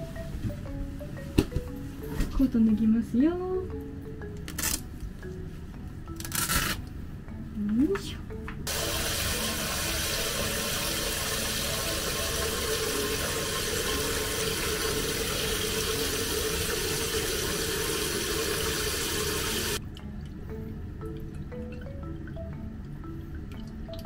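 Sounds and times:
tap water running: 0:08.7 - 0:20.4.

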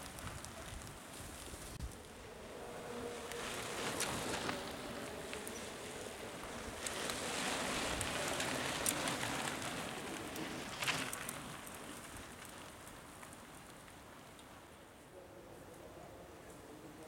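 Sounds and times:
bike tyres rolling over dirt: 0:00.0 - 0:15.1.

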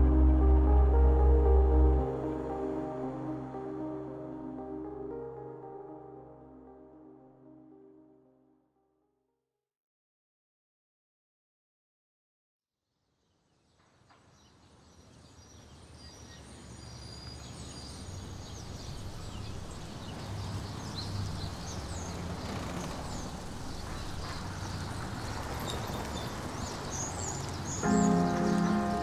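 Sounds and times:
steady low rumble: 0:00.0 - 0:05.2
birds chirping: 0:15.0 - 0:29.0.

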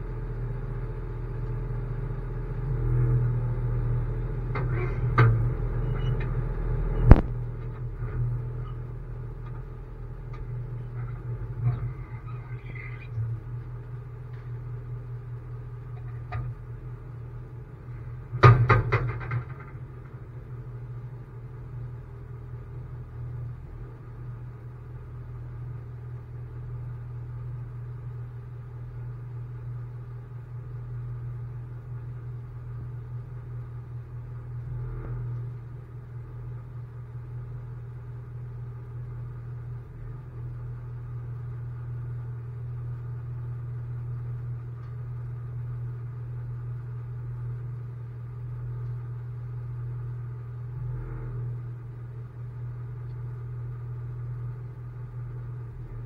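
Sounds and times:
truck engine idling: 0:00.0 - 0:24.2.

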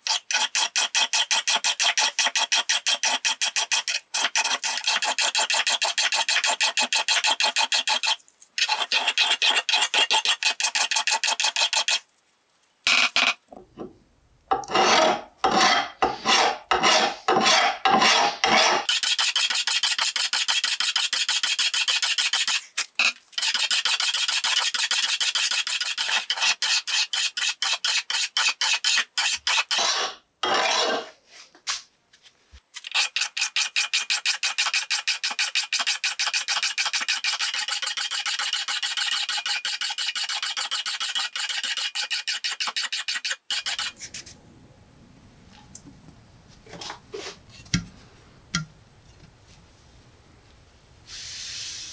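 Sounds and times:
hand file rasping on steel: 0:00.0 - 0:12.0, 0:14.5 - 0:22.6, 0:23.4 - 0:31.1, 0:32.8 - 0:44.4.

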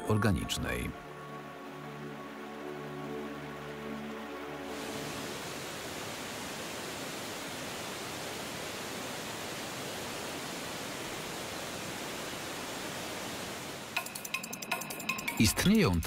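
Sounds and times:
waterfall rushing over rock: 0:01.4 - 0:14.0.

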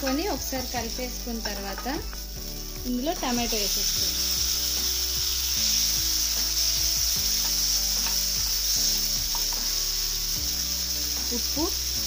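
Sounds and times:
vegetables sizzling in hot oil: 0:00.0 - 0:12.0
spatula scraping a pan: 0:06.6 - 0:09.8.

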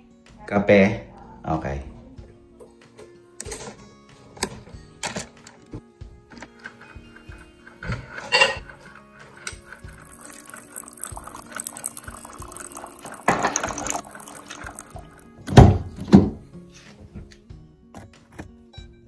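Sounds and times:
background music: 0:00.0 - 0:19.0
coffee maker brewing: 0:06.2 - 0:15.7
coffee streaming into mug: 0:06.4 - 0:15.4.

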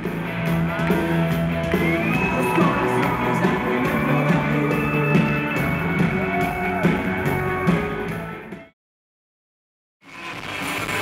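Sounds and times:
rock band playing live: 0:00.0 - 0:08.7, 0:10.1 - 0:11.0
person singing: 0:01.8 - 0:08.3.

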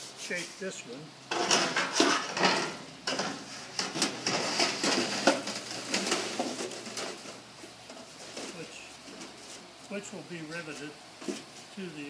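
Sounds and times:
sheet metal rattling and scraping: 0:01.3 - 0:09.7.

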